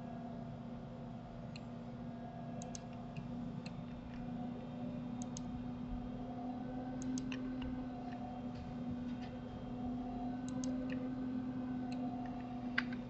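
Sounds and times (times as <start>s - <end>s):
steady low hum: 0.0s - 13.0s
mouse and keyboard clicks: 7.0s - 7.4s, 10.5s - 11.0s.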